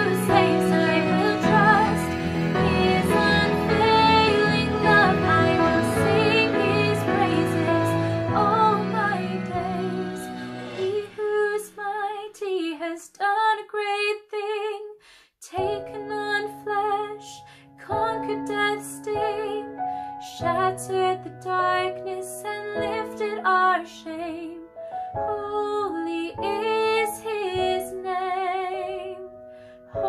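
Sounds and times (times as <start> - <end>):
soft instrumental accompaniment: 0.0 - 11.6
woman singing with vibrato: 0.0 - 19.7, 25.3 - 29.2.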